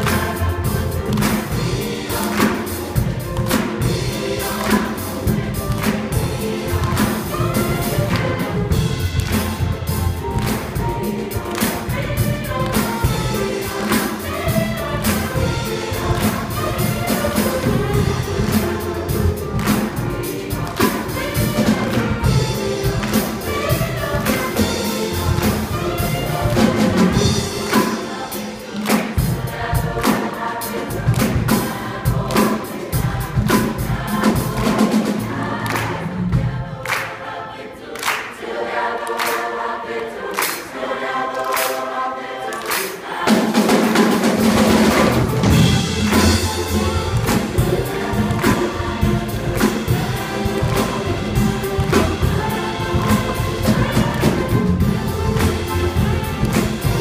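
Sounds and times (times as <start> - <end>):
people clapping along: 0.0 - 22.2, 22.8 - 34.8, 35.5 - 57.0
upright bass: 0.0 - 28.0, 44.2 - 57.0
drum kit: 0.0 - 37.0, 42.7 - 57.0
choir singing: 0.0 - 57.0
congas: 0.0 - 57.0.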